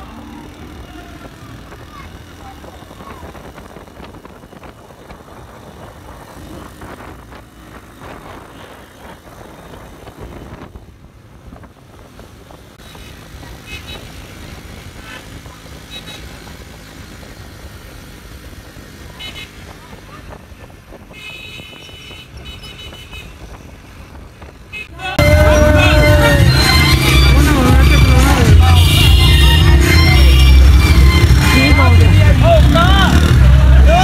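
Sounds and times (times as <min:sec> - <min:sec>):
car and motorcycle engines: 0:00.0 - 0:34.0
short high tones: 0:25.2 - 0:32.2
background voices: 0:31.4 - 0:34.0.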